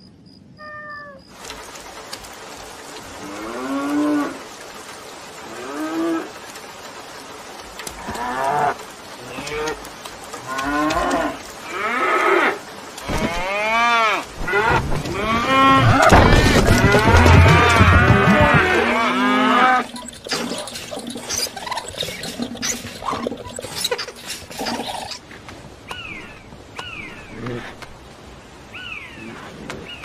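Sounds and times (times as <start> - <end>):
cows mooing: 10.4 - 23.6.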